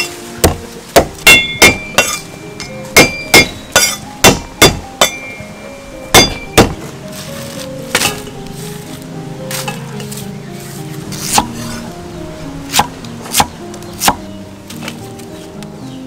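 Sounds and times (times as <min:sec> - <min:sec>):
cleaver chopping on wooden block: 0:00.4 - 0:02.2, 0:03.0 - 0:05.2, 0:06.1 - 0:06.9, 0:11.2 - 0:11.6, 0:12.7 - 0:14.2.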